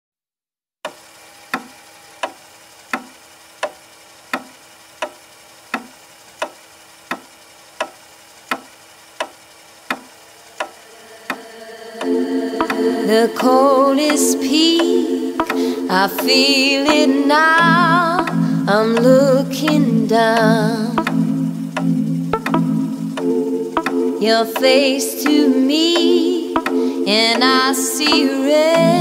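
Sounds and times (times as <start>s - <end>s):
regular ticking: 0.8s - 29.0s
faint hum: 1.1s - 29.0s
music: 12.0s - 29.0s.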